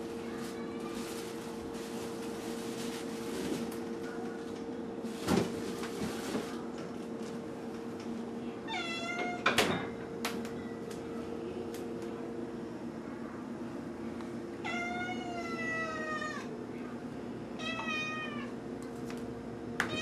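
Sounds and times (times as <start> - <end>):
steady hum: 0.0 - 20.0
cat meowing: 8.7 - 9.4, 14.6 - 16.5, 17.6 - 18.5.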